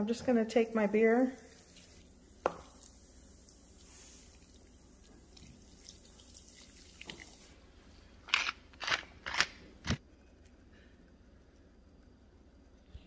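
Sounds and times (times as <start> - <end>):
beer trickling onto meat: 0.8 - 7.6.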